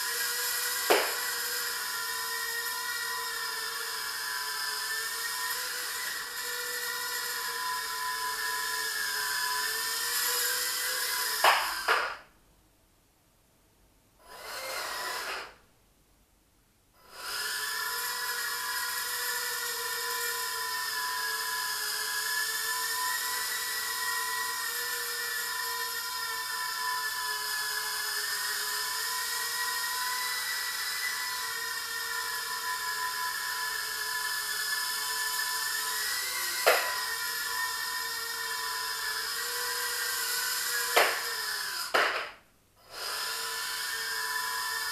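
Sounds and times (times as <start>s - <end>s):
quadcopter motors whining: 0.0s - 12.2s, 14.2s - 15.6s, 17.0s - 42.2s, 42.8s - 44.9s
sharp knocks: 41.9s - 42.4s.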